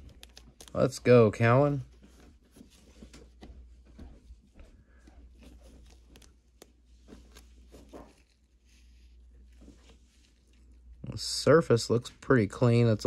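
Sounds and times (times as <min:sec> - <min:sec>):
plastic card sleeve rustling: 0:00.0 - 0:03.8, 0:05.0 - 0:11.0.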